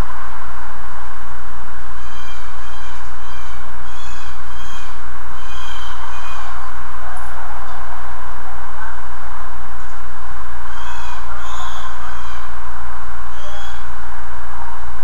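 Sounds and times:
low hum: 0:00.0 - 0:15.0
steady hiss: 0:00.0 - 0:15.0
blue jay harsh calls: 0:02.0 - 0:06.7, 0:10.6 - 0:12.6, 0:13.3 - 0:13.9.

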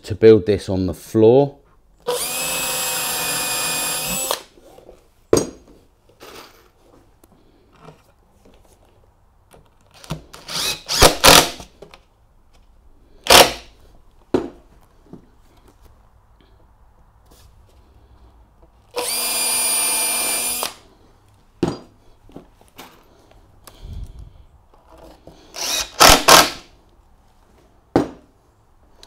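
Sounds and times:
cordless drill into wood: 0:02.0 - 0:04.5, 0:10.4 - 0:11.7, 0:13.3 - 0:13.7, 0:18.9 - 0:20.8, 0:25.5 - 0:26.7.

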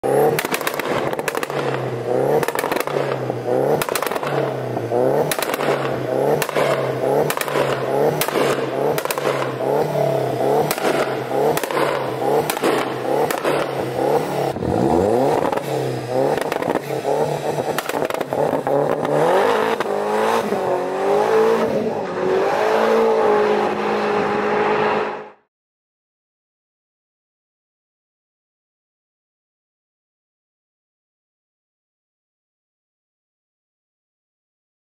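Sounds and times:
car engine revving against limiter: 0:00.0 - 0:25.4
exhaust crackles and pops: 0:00.2 - 0:04.6, 0:05.2 - 0:09.7, 0:10.6 - 0:20.0.

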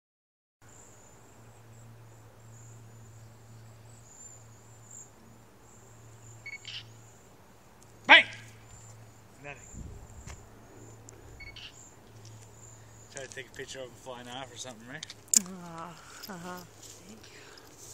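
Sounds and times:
bird chirps: 0:06.3 - 0:07.2, 0:08.1 - 0:13.2.

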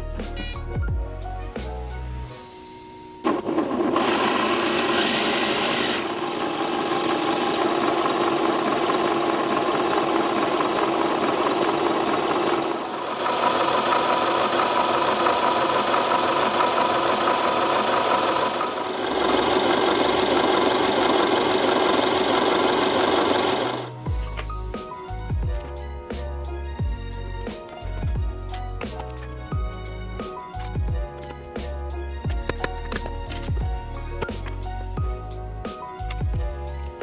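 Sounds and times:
thin high whine: 0:03.2 - 0:24.0
motor driving gear pump: 0:03.2 - 0:24.1.

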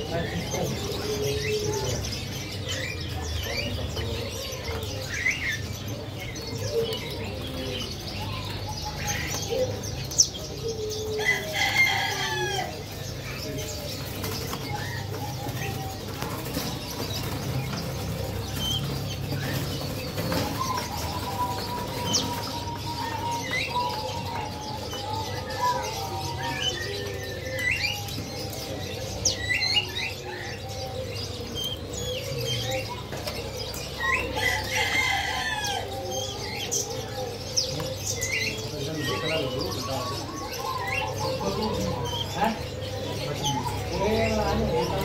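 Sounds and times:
bird chirps and calls: 0:00.0 - 0:45.0.

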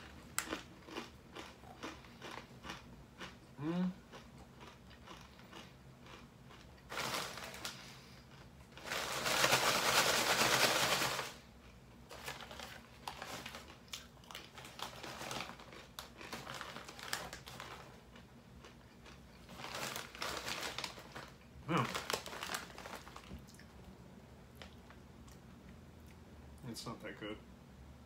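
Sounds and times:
chip bag crinkling: 0:00.0 - 0:03.3, 0:04.1 - 0:11.5, 0:12.1 - 0:23.6
chips crunching while chewed: 0:00.0 - 0:23.7.

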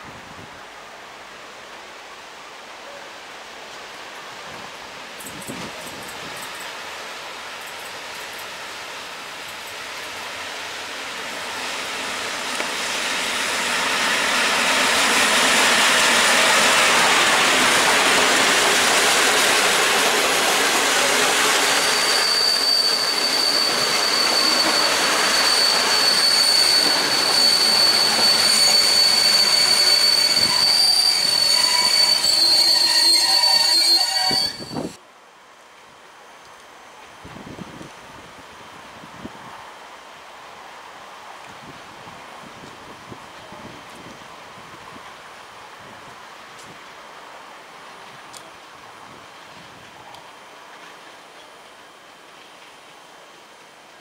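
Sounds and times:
train wheels rumbling on rails: 0:03.8 - 0:35.0
high-pitched wheel squeal: 0:20.9 - 0:35.0.

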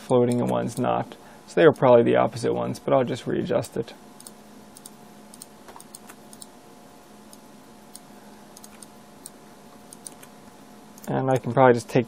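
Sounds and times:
low steady hum: 0:00.0 - 0:12.0
keyboard and mouse clicks: 0:04.2 - 0:06.5, 0:08.6 - 0:10.3.

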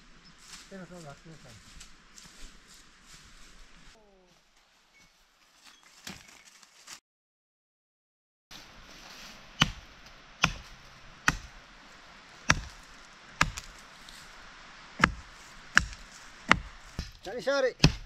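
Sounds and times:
heavy chopping strikes: 0:09.6 - 0:11.6, 0:12.4 - 0:13.8, 0:15.0 - 0:18.0.

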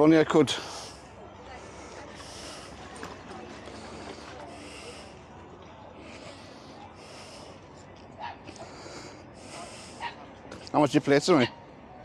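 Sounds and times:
outdoor background noise: 0:00.0 - 0:12.0
distant voice: 0:00.5 - 0:10.5
person breathing close up: 0:03.7 - 0:05.4, 0:06.0 - 0:07.8, 0:08.5 - 0:10.0.

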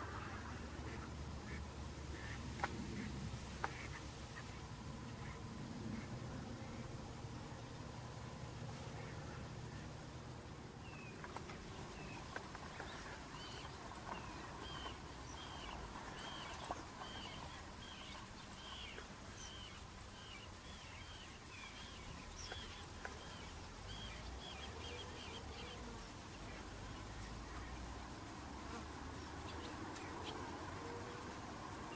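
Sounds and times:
low background rumble: 0:00.0 - 0:31.9
bird chirping: 0:10.8 - 0:28.1, 0:29.1 - 0:31.9.

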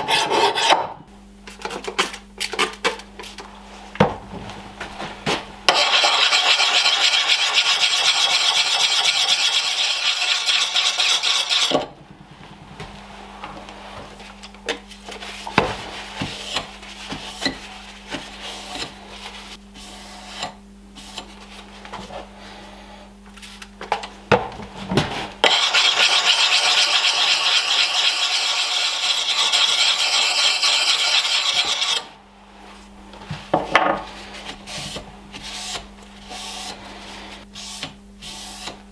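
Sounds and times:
sharpening stone grinding on axe: 0:05.7 - 0:11.8, 0:25.4 - 0:32.0.

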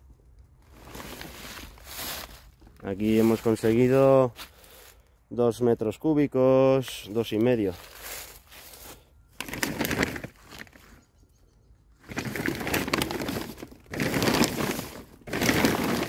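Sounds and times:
plastic sheeting crinkling: 0:00.6 - 0:04.0, 0:07.5 - 0:11.0, 0:12.0 - 0:16.0.

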